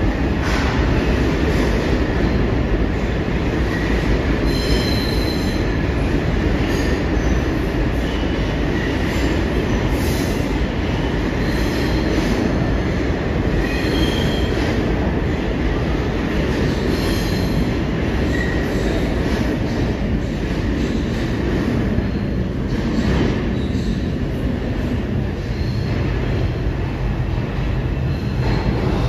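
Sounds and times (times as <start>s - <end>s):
train wheels rumbling on rail: 0.0s - 29.0s
high-pitched wheel squeals: 4.4s - 5.6s.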